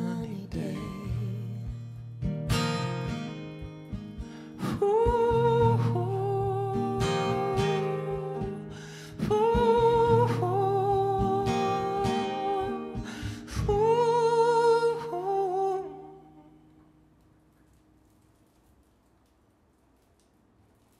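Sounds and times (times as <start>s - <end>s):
wordless singing: 0.0s - 1.7s, 4.6s - 16.5s
acoustic guitar strumming: 0.0s - 17.4s.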